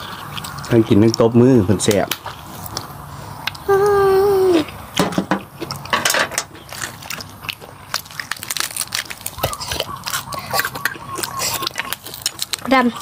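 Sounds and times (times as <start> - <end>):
biting crunching and chewing food: 0.0 - 3.7, 4.6 - 13.0
child's high-pitched squeal: 3.7 - 4.7.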